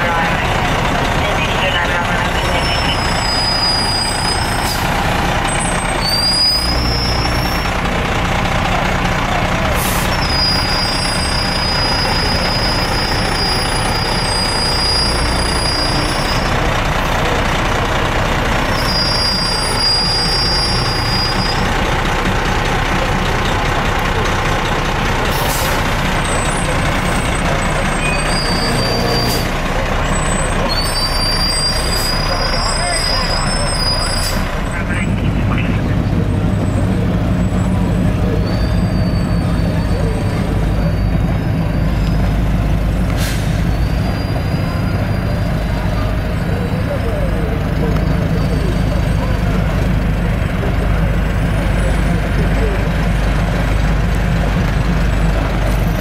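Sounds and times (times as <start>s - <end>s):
diesel engines rumbling: 0.0s - 56.0s
high-pitched brake squeals: 2.3s - 4.9s, 5.5s - 7.7s, 9.8s - 16.5s, 18.7s - 21.7s, 25.4s - 34.8s, 36.1s - 49.8s
air brake hisses: 43.1s - 43.7s.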